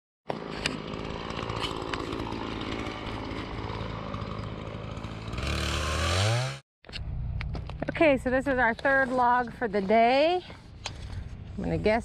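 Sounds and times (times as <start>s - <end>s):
gasoline engine saw cutting: 0.3s - 6.6s.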